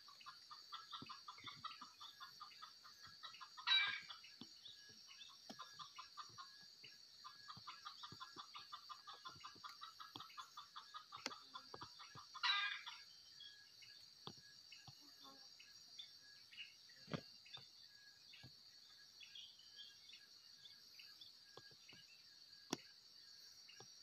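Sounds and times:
junglefowl clucking: 0.0s - 4.3s, 7.2s - 13.0s.

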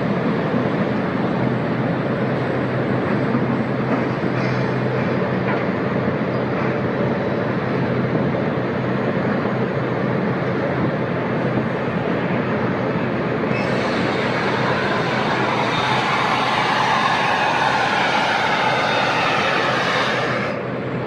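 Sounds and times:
heavy mining machinery drone: 12.7s - 21.0s
low hum: 13.5s - 20.9s.

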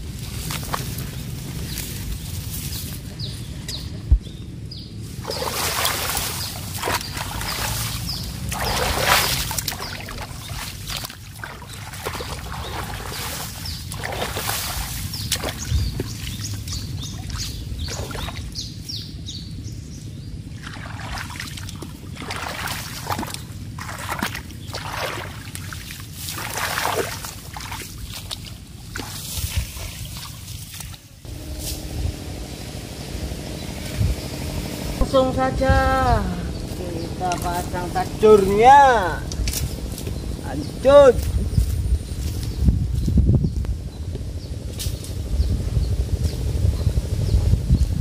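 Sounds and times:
water sloshing and splashing: 5.1s - 18.6s, 20.5s - 31.3s.

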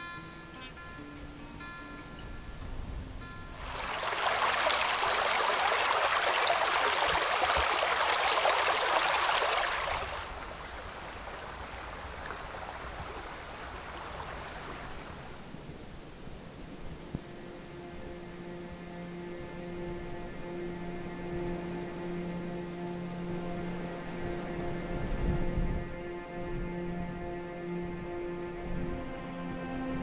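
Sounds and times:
stream rushing over rocks: 3.6s - 17.7s.

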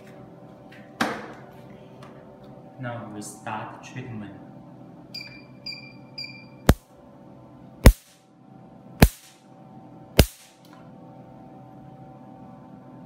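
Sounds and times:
machine hum: 0.0s - 13.0s
short machine beep: 5.2s - 6.7s
laser pulse snaps: 7.8s - 8.2s, 9.0s - 9.4s, 10.2s - 10.7s.

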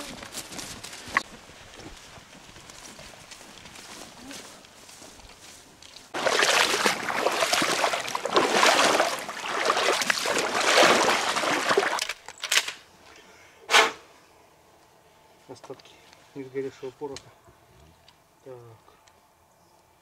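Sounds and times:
water splashing and sloshing: 6.0s - 12.3s
short splashes: 6.1s - 12.2s.

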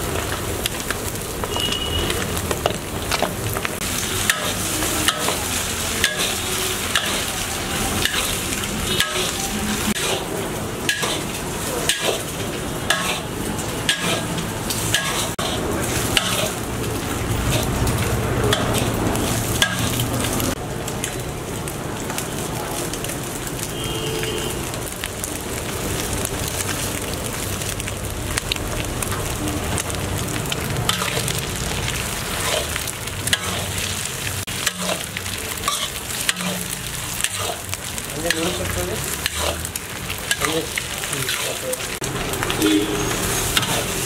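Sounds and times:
vegetables sizzling in a wok: 0.0s - 44.0s
metal ladle scraping a wok: 4.0s - 12.3s, 12.9s - 16.7s, 18.5s - 20.0s, 30.9s - 31.3s, 32.2s - 34.0s, 34.6s - 37.7s, 38.3s - 41.6s, 42.6s - 44.0s.

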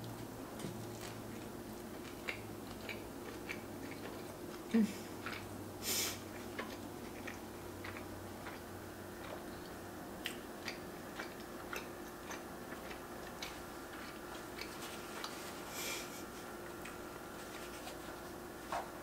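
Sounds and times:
faint steady hum: 0.0s - 19.0s
chewing mouth clicks: 1.9s - 5.5s, 6.3s - 15.4s
paper napkin rustle: 14.7s - 15.8s, 17.3s - 18.8s.

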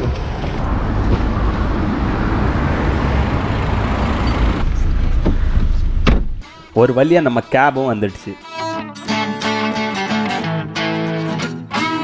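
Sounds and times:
car running close by: 0.0s - 6.0s
city traffic noise: 0.0s - 6.5s.

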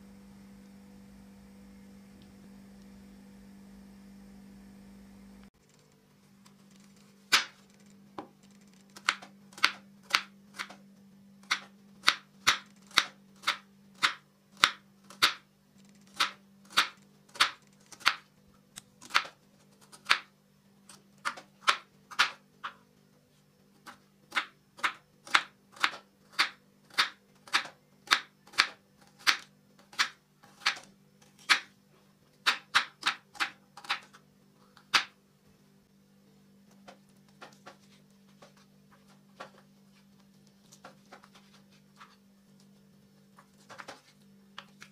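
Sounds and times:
knife slicing onion: 8.9s - 10.8s, 11.4s - 15.4s, 16.0s - 18.2s, 23.8s - 31.7s, 32.4s - 34.2s.

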